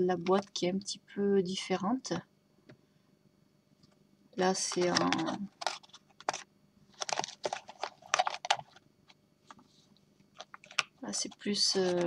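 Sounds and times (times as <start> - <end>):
fingers tapping and scraping cards: 4.6 - 6.4, 7.0 - 8.8, 10.3 - 12.0.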